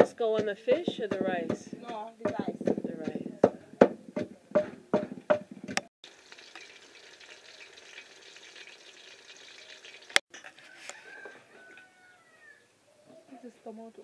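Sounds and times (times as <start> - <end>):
fish frying in hot oil: 6.0 - 10.2.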